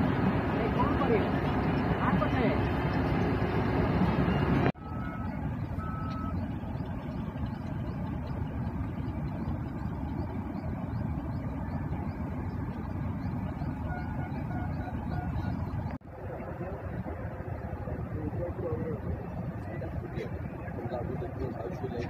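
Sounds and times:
steady low rumble: 0.0 - 22.0
short electronic beeps: 4.2 - 6.4.

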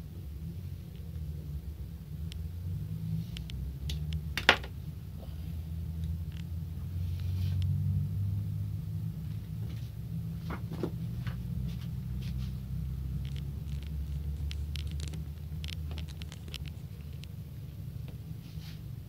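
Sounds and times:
steady low rumble: 0.0 - 19.0
sharp clicks: 13.2 - 17.4.

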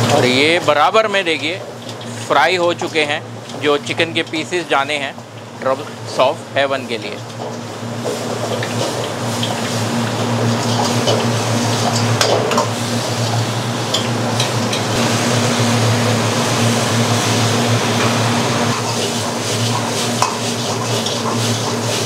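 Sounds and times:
gas burner rushing: 0.0 - 22.0
sauce sizzling in wok: 0.0 - 22.0
low hum: 13.3 - 18.8.

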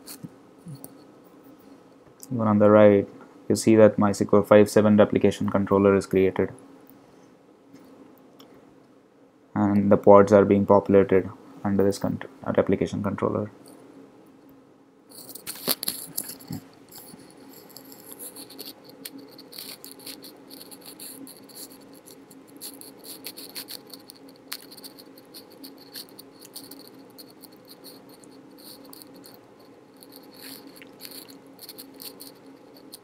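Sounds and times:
faint hum and hiss: 0.0 - 33.0
small clicks and crackles: 15.1 - 33.0.

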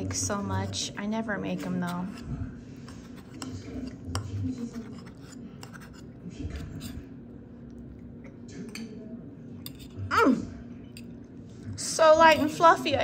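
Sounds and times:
low steady hum: 0.0 - 13.0
fork scraping on ceramic plate: 1.5 - 7.2, 9.6 - 10.2.

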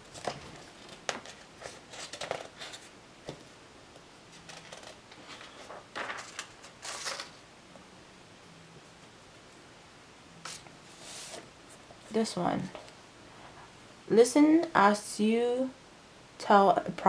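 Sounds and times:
paper rustling: 0.0 - 3.4, 4.3 - 7.4, 10.4 - 11.8
page swishing: 10.4 - 11.4.

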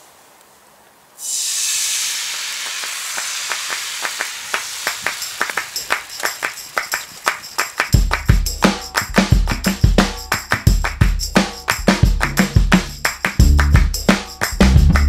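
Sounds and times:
batter sizzling in a pan: 1.2 - 6.1.

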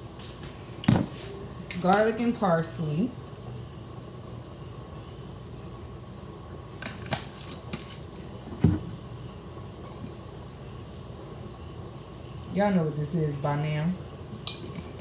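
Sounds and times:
fan-like hum: 0.0 - 15.0.

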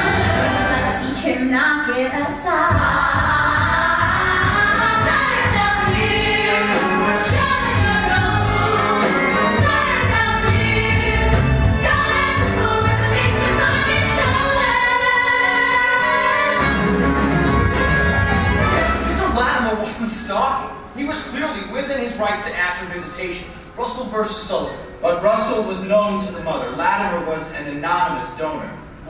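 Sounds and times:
voices singing together: 0.0 - 1.6, 2.3 - 19.0
instrumental accompaniment: 2.6 - 21.7.

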